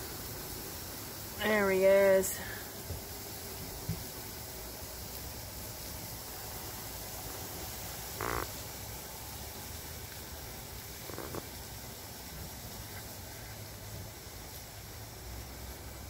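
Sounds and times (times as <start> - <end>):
steady background hiss: 0.0 - 16.0
tree frog calling: 8.0 - 8.8, 11.0 - 11.6.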